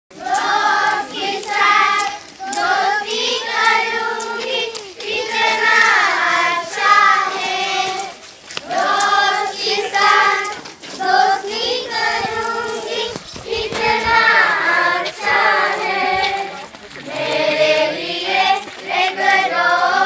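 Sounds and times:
group singing a devotional song: 0:00.1 - 0:20.0.

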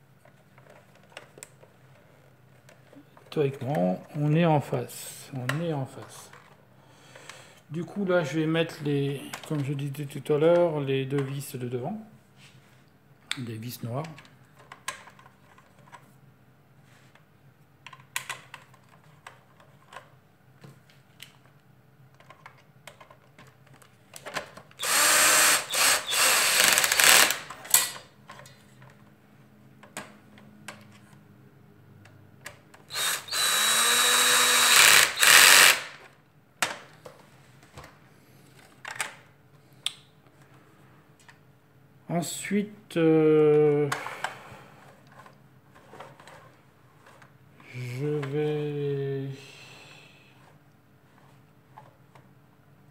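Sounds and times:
power screwdriver driving screws: 0:24.8 - 0:27.5, 0:32.9 - 0:36.0.

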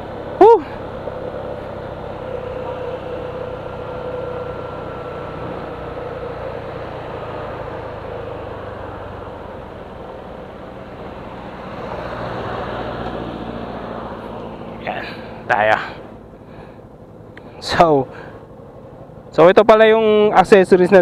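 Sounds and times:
motorcycle engine slowing down: 0:00.0 - 0:12.0
wind and road noise: 0:00.0 - 0:21.0.

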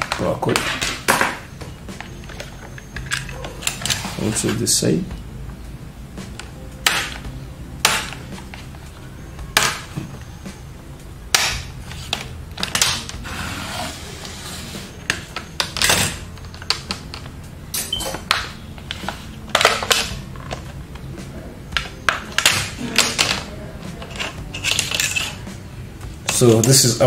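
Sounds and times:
plastic clips clicking and snapping: 0:18.2 - 0:21.1, 0:21.8 - 0:25.4.

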